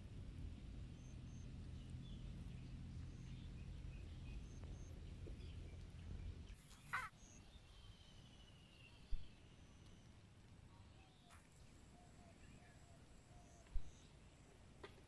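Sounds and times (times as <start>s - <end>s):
faint bird calls: 6.5s - 8.0s, 10.8s - 14.2s.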